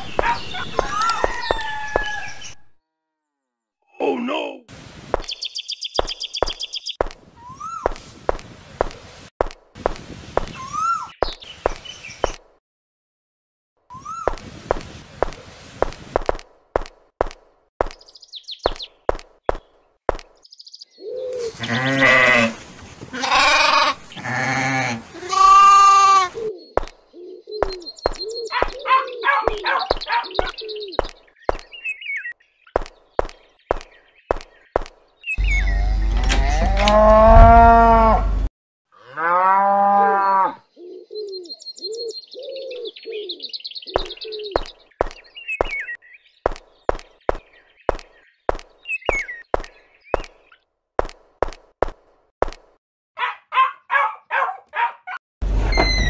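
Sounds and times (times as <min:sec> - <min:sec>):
birds chirping: 0:00.0 - 0:02.8, 0:03.9 - 0:09.3, 0:10.4 - 0:12.6, 0:17.4 - 0:22.0, 0:26.1 - 0:38.5, 0:40.1 - 0:50.7, 0:53.2 - 0:56.0
sheep or goats bleating: 0:21.5 - 0:26.3, 0:36.2 - 0:38.3
cow mooing: 0:35.8 - 0:40.6.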